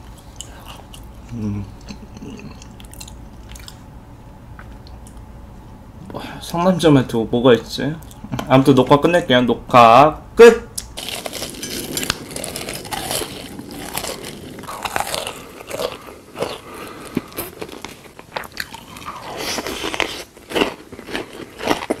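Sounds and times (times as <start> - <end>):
chewing: 0.0 - 3.9, 11.0 - 22.0
person crunching food: 0.0 - 3.9, 10.8 - 22.0.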